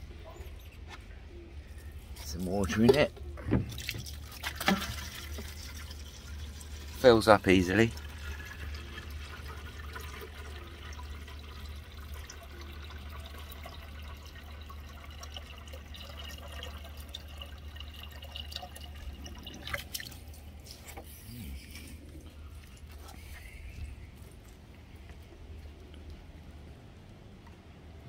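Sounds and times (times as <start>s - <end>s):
water filling a watering can: 2.2s - 21.0s.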